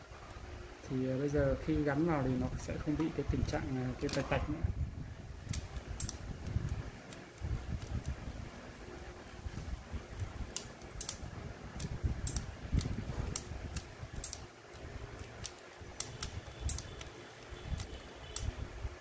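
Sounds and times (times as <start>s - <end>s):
low mechanical rumble: 0.0s - 19.0s
cassette mechanism clicking: 5.4s - 8.3s, 9.4s - 18.6s.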